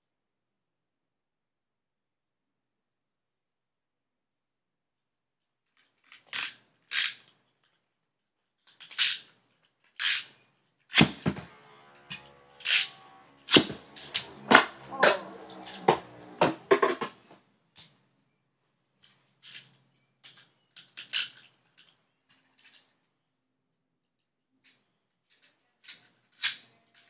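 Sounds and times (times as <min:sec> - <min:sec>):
whir of spinning tops: 0:10.0 - 0:17.4
spinning tops clacking: 0:10.9 - 0:17.2.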